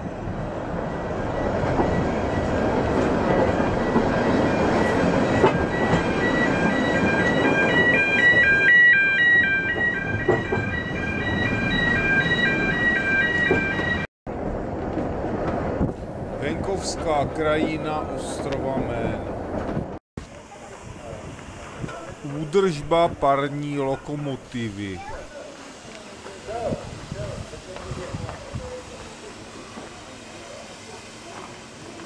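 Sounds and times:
railway carriage rumbling on track: 0.0s - 32.0s
level crossing warning jingle: 0.8s - 14.1s.

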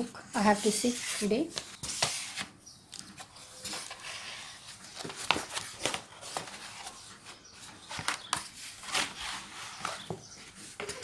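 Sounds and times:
cardboard mailer scraping and crinkling: 8.0s - 11.0s.

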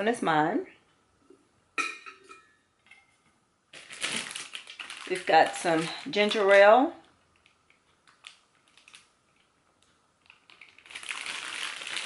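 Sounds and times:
plastic bag crinkling: 3.7s - 12.0s.

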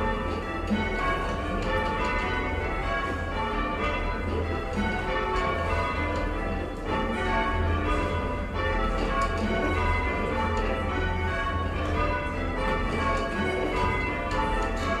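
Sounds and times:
church bells ringing: 0.0s - 15.0s.

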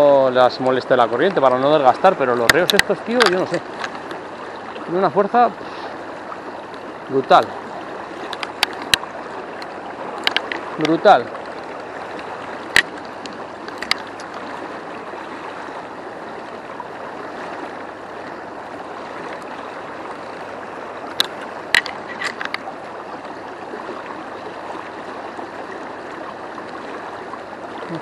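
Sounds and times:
fast-flowing river rushing: 0.0s - 28.0s.

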